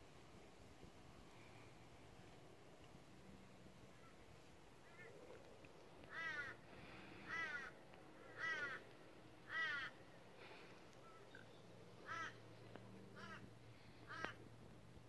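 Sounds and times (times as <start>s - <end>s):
crow cawing: 6.0s - 10.0s, 12.0s - 12.4s, 13.1s - 14.4s.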